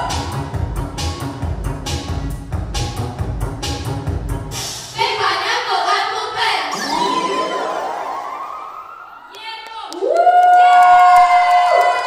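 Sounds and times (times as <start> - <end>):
pop music with girls singing: 4.7 - 7.7
high voice holding long note: 6.7 - 8.5.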